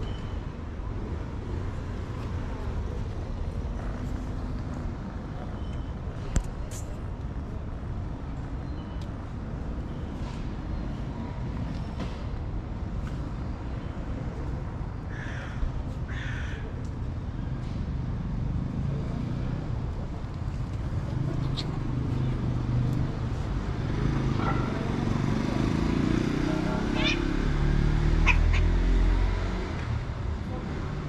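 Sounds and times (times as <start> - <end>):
road traffic rumble: 0.0 - 31.0
short harsh calls: 28.2 - 28.8.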